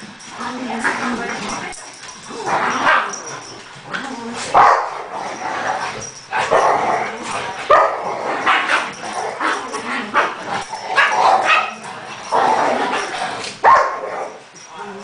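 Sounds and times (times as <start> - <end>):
dogs barking: 4.5 - 5.2, 6.4 - 14.5.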